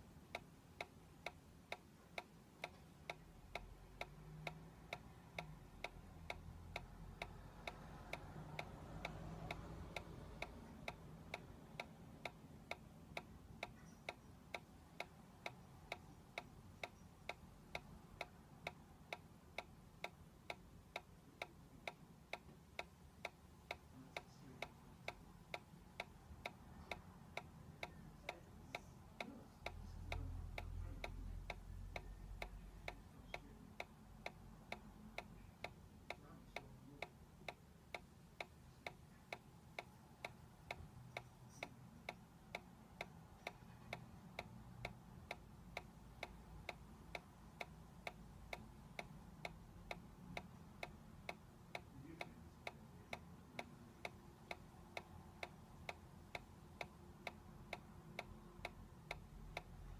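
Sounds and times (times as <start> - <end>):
toy ticking faintly: 0.0 - 59.9.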